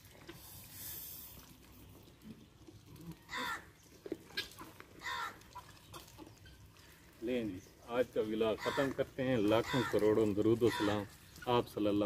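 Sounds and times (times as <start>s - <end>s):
harsh bird calls: 8.4s - 11.8s.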